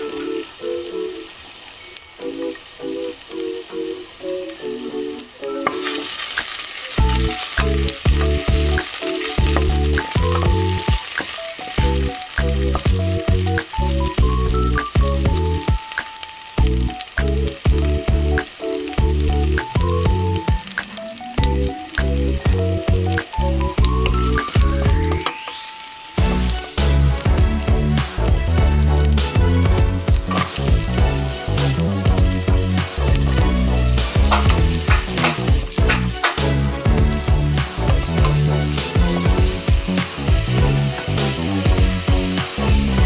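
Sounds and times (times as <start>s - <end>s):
garlic sizzling in hot oil: 0.0s - 43.0s
background music with bass: 7.0s - 11.0s, 11.8s - 15.8s, 16.6s - 20.6s, 21.4s - 25.3s, 26.2s - 43.0s.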